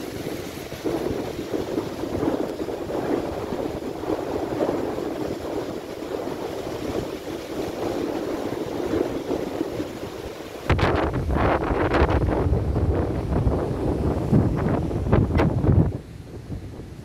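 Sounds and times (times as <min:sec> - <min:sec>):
surf breaking on pebbly shore: 0:00.0 - 0:17.0.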